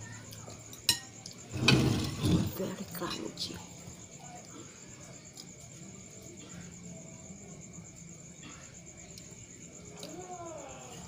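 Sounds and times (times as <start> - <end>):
high-pitched insect trill: 0.0 - 11.0
faint eating clicks: 8.6 - 10.7.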